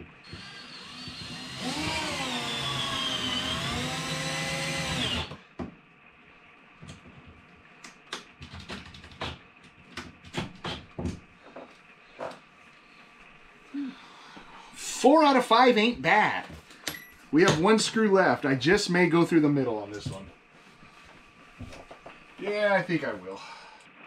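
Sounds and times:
power drill driving screw: 0.2s - 5.4s.

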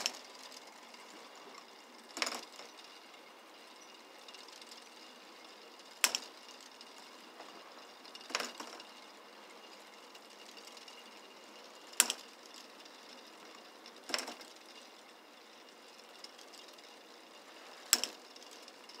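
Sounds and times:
plastic mechanism rattling: 0.0s - 3.0s, 8.1s - 9.0s, 11.7s - 15.0s
sharp plastic clacks: 5.9s - 6.4s, 11.9s - 12.7s.

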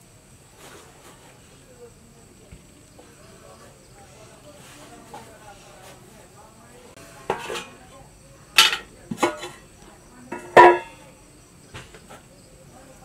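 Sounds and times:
metal cookware clanking: 7.2s - 9.7s, 10.3s - 11.1s.

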